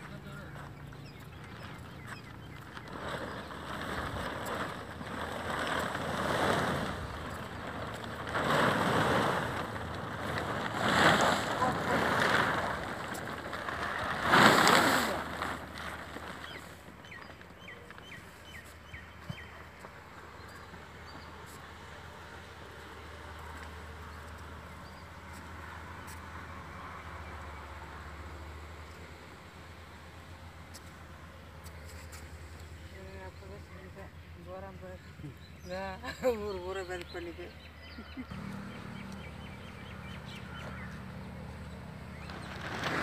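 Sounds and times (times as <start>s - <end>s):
bird chirping: 0.0s - 3.8s, 16.4s - 21.7s, 31.5s - 42.7s.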